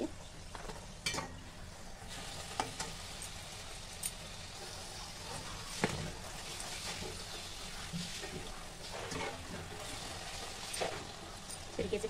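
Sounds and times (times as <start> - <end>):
dough sizzling in hot oil: 0.0 - 12.0.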